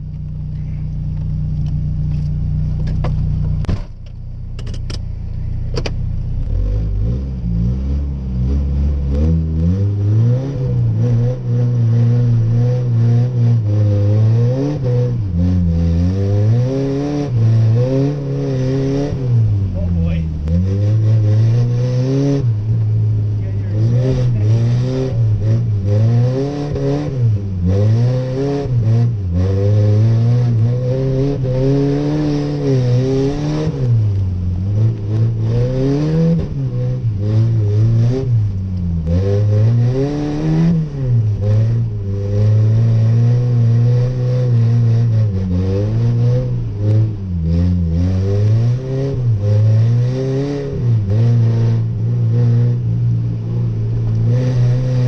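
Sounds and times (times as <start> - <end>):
truck engine revving: 6.4 - 55.0.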